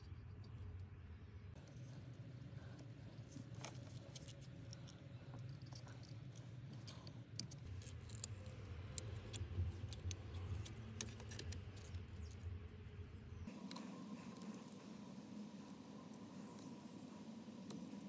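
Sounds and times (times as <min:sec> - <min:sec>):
faint low hum: 0:00.0 - 0:18.0
clicks and scratches of pliers: 0:03.2 - 0:12.4.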